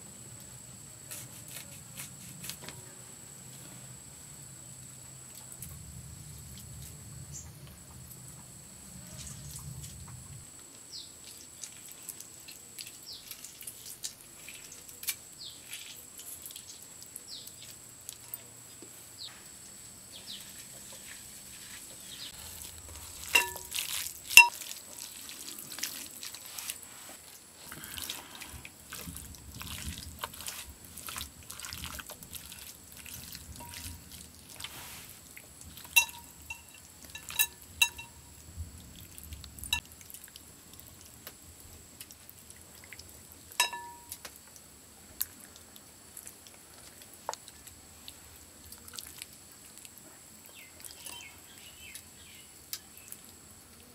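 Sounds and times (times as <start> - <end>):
hand mixing wet food: 11.2 - 18.2, 20.3 - 38.2
juice dripping into glass bowl: 22.6 - 26.4, 28.9 - 34.7, 35.7 - 41.1, 42.8 - 44.5
sharp clinks: 23.3 - 24.6, 36.0 - 38.2, 43.6 - 44.2.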